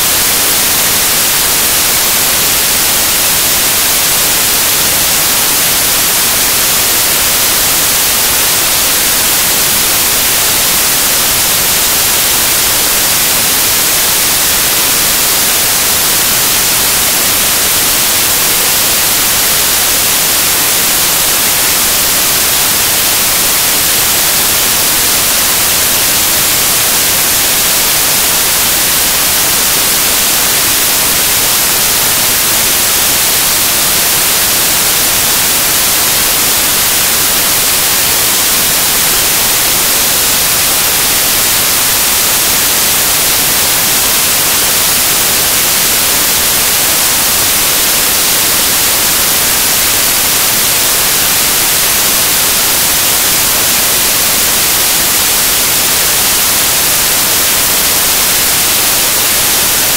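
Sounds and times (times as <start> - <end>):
loud static hiss: 0.0 - 59.9.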